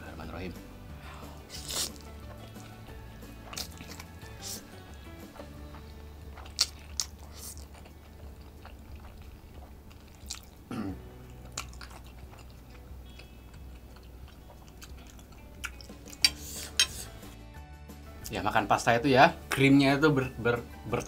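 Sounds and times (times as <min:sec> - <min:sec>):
man chewing and slurping: 0:01.2 - 0:17.4
wet mouth clicks: 0:03.6 - 0:04.7.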